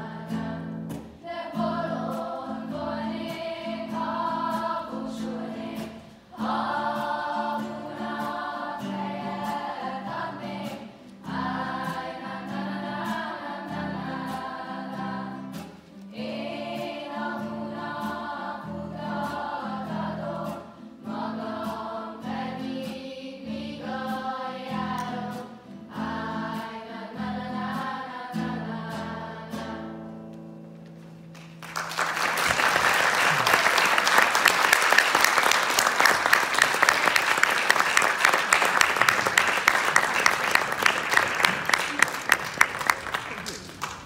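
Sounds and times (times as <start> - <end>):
group of voices singing: 0.0 - 30.0
audience applause: 31.3 - 44.0.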